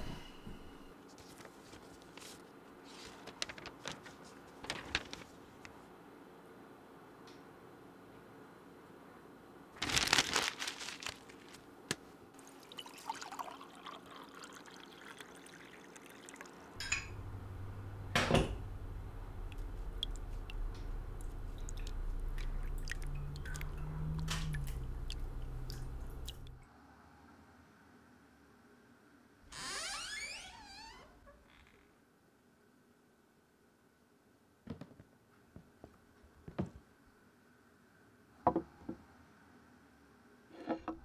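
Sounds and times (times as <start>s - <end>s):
low steady hum: 0.0s - 29.4s
rustling: 1.1s - 5.7s, 9.8s - 12.0s
water pouring and dripping: 12.4s - 17.0s, 19.3s - 26.6s.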